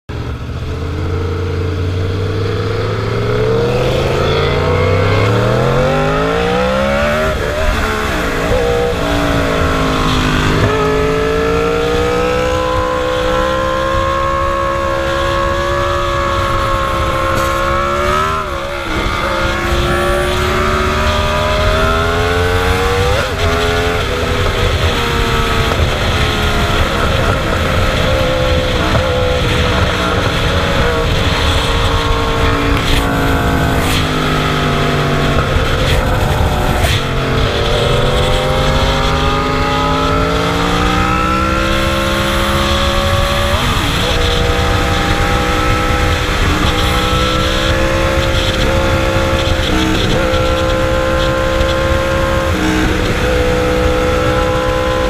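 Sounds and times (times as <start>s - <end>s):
motorcycle engine accelerating: 0.1s - 55.0s
wind rushing over microphone: 0.1s - 55.0s.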